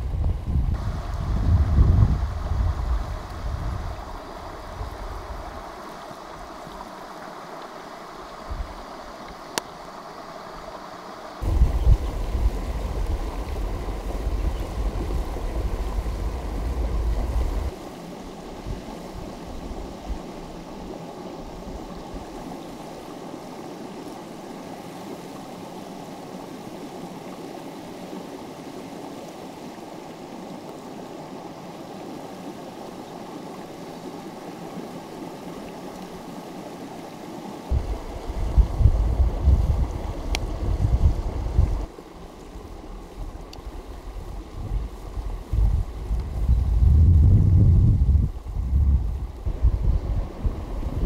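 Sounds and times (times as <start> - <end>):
wind buffeting microphone: 0.0 - 5.7, 11.4 - 17.8, 37.7 - 41.9, 42.9 - 51.0
stream rushing over rocks: 0.0 - 46.5, 48.1 - 51.0.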